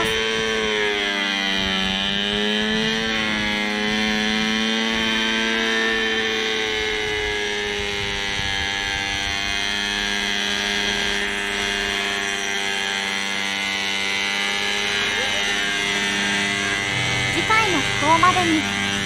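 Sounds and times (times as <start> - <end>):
model helicopter engine and rotor: 0.0 - 19.0.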